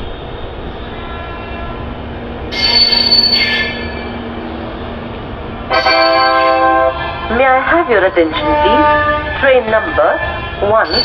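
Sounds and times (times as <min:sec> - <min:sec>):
train coaches rumbling: 0:00.0 - 0:11.0
high-pitched metallic squeal: 0:02.5 - 0:04.2, 0:05.7 - 0:06.7.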